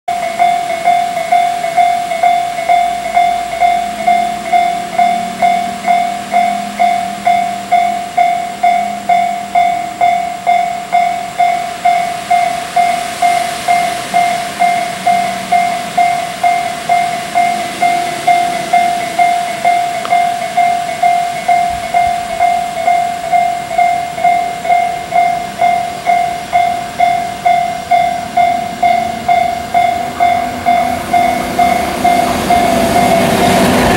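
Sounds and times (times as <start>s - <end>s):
level-crossing warning bell ringing: 0.1s - 33.9s.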